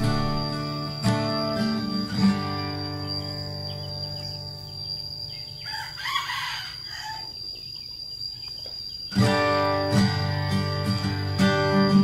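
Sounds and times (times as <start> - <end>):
strummed acoustic guitar music: 0.0 - 5.6, 9.1 - 12.0
bird calling: 0.0 - 12.0.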